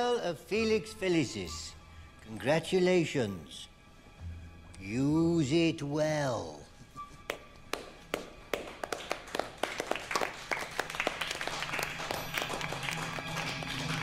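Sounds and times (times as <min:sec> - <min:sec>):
music: 0:00.0 - 0:14.0
people clapping: 0:07.3 - 0:14.0.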